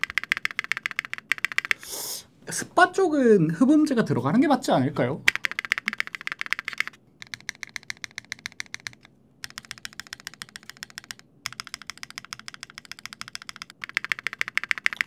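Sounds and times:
mechanical keyboard typing: 0:00.0 - 0:01.8, 0:05.3 - 0:15.0.

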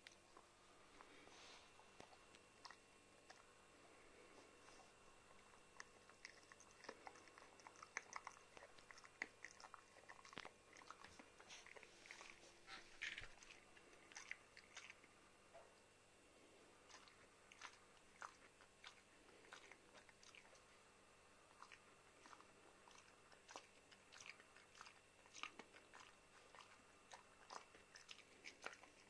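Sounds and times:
dog gnawing chew stick: 0:04.2 - 0:15.2, 0:16.8 - 0:20.8, 0:21.5 - 0:29.0.

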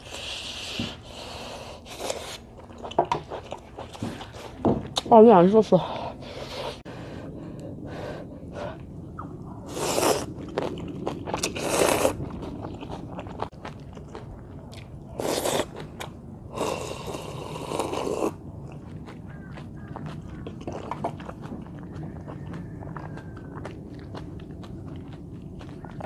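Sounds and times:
noisy noodle slurps: 0:09.7 - 0:13.5, 0:16.5 - 0:18.4
chewing clicks: 0:18.6 - 0:26.0.

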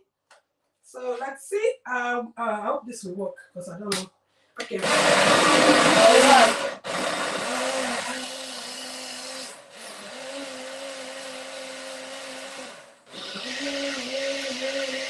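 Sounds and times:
blender motor running: 0:04.6 - 0:15.0.

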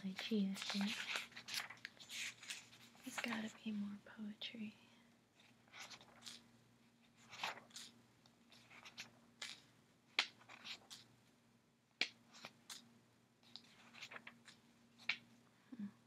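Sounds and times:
book pages rustling: 0:00.0 - 0:03.8, 0:05.4 - 0:11.1, 0:12.0 - 0:15.3
faint steady hum: 0:00.0 - 0:16.0.

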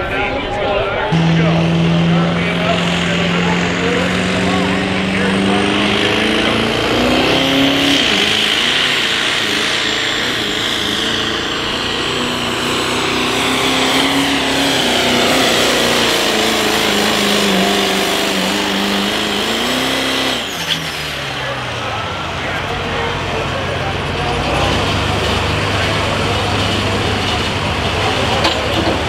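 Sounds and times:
diesel truck engine at full throttle: 0:00.0 - 0:29.0
high whine: 0:01.1 - 0:19.4.

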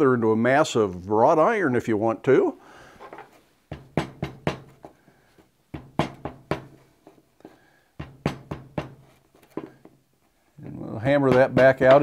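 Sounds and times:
hammer knocking on clay: 0:03.7 - 0:04.9, 0:05.7 - 0:06.8, 0:08.0 - 0:10.0, 0:11.1 - 0:12.0.

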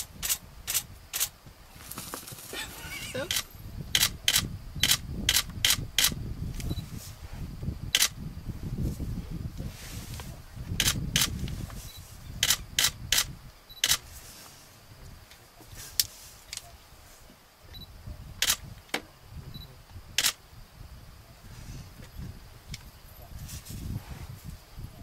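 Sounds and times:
camera shutters clicking: 0:03.3 - 0:06.2, 0:10.8 - 0:11.4, 0:12.4 - 0:14.0, 0:18.4 - 0:18.6, 0:20.2 - 0:20.4.

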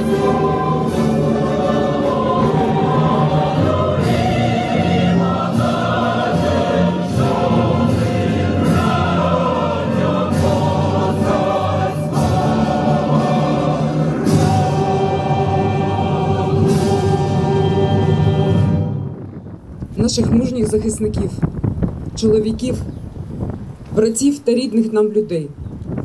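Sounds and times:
choir singing a slow chant: 0:00.0 - 0:19.5.

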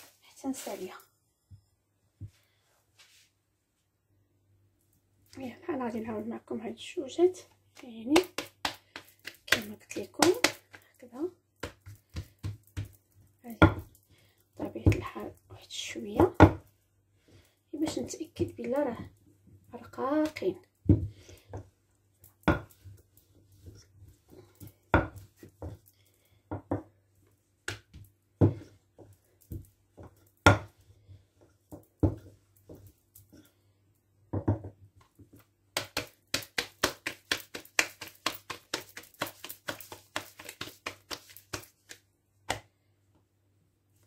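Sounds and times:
rolling pin knocking on countertop: 0:34.3 - 0:34.8.

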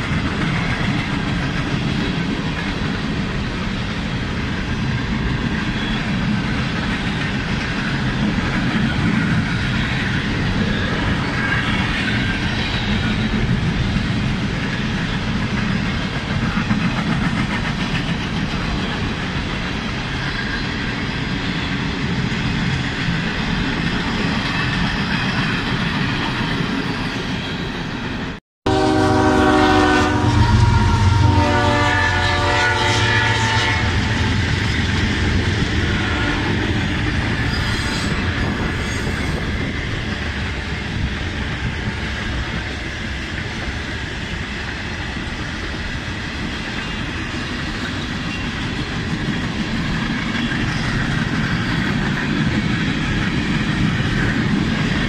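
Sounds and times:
wheels clickety-clack on rail joints: 0:00.0 - 0:28.4, 0:31.3 - 0:55.0
locomotive horn: 0:28.7 - 0:34.3, 0:35.9 - 0:36.7.

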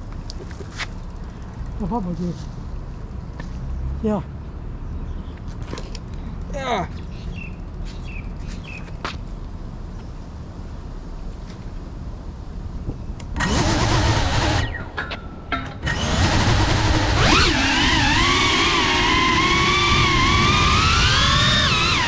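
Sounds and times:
drone propellers whining: 0:13.4 - 0:22.0.

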